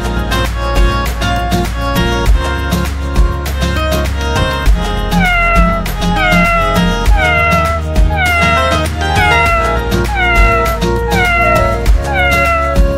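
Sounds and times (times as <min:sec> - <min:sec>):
background music: 0:00.0 - 0:12.9
cat meowing: 0:05.1 - 0:12.9.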